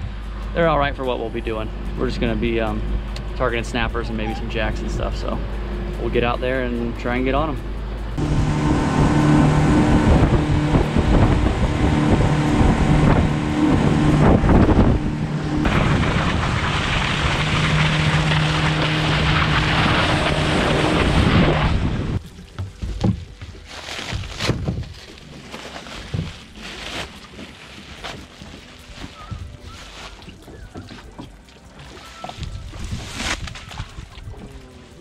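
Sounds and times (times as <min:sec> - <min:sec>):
outboard engine hum: 0:00.0 - 0:35.0
wind buffeting microphone: 0:08.2 - 0:23.1, 0:32.3 - 0:34.6
plastic bag rustling: 0:22.3 - 0:30.7.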